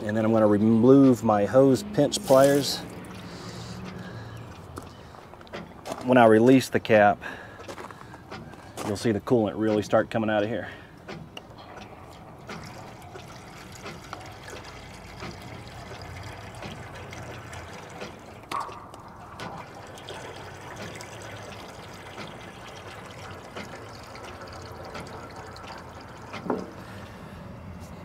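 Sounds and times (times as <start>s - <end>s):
liquid trickling into a pan: 0.0s - 5.3s, 12.0s - 27.2s.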